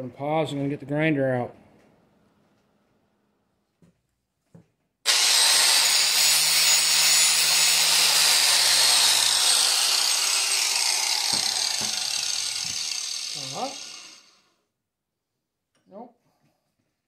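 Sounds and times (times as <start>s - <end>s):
angle grinder grinding metal: 5.1s - 14.5s.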